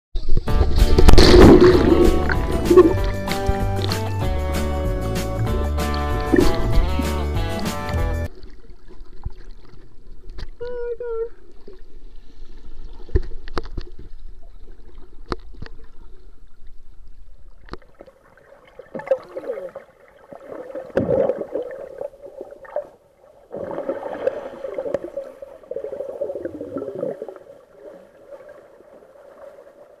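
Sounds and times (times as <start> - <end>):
low underwater knocks: 0.5 - 8.2
exhaled air bubbling: 23.5 - 28.1.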